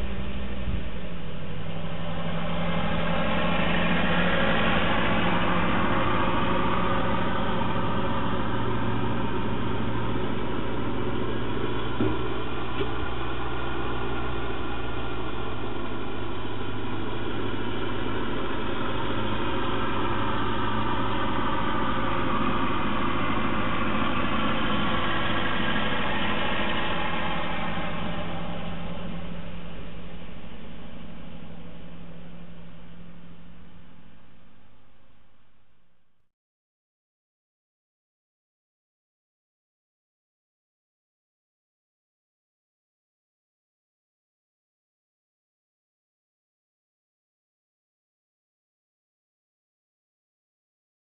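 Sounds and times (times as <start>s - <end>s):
tractor engine running: 0.0s - 35.8s.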